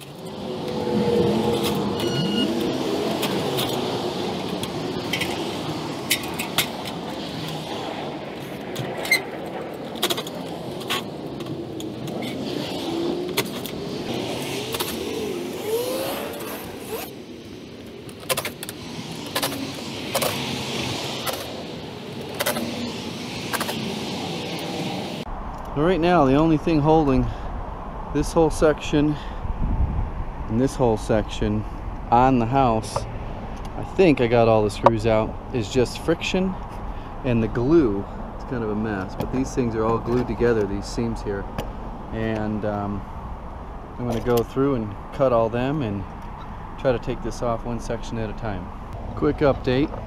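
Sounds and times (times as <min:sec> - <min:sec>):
vehicle engine passing by: 0:00.0 - 0:08.4, 0:11.6 - 0:17.2
rush of traffic: 0:00.0 - 0:50.0.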